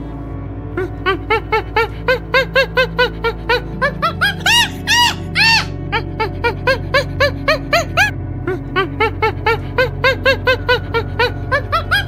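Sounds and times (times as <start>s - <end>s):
background music: 0.0s - 12.0s
squeaky animal calls: 1.8s - 8.1s, 9.5s - 12.0s.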